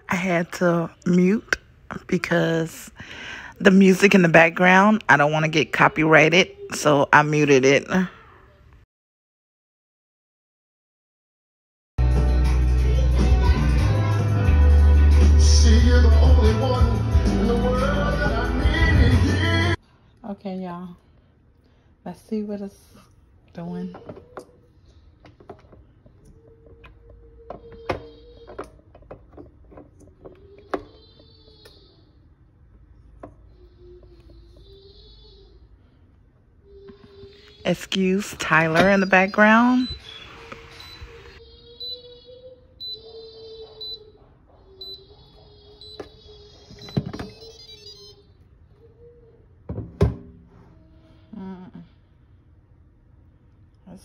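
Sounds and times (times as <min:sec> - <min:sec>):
cooking appliance humming: 0:36.7 - 0:44.1.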